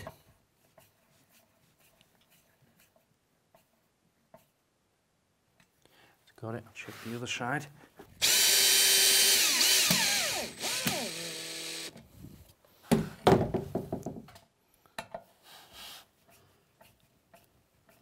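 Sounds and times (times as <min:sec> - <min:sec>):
cordless drill driving screw: 0:08.2 - 0:12.0.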